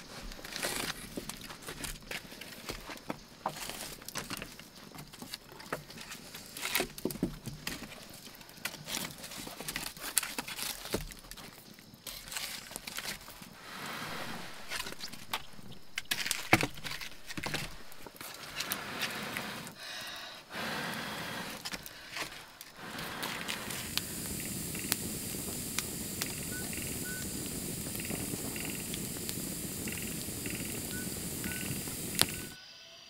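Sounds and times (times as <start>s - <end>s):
wood fire crackling and popping: 0.0s - 19.7s, 21.6s - 32.6s.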